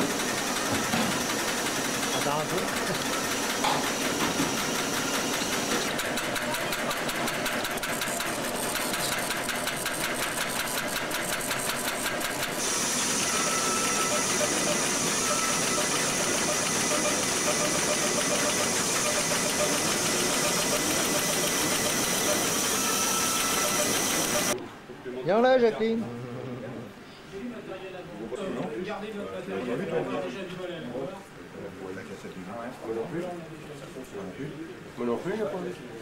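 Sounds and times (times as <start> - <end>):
machinery mechanical din: 0.0 - 24.6.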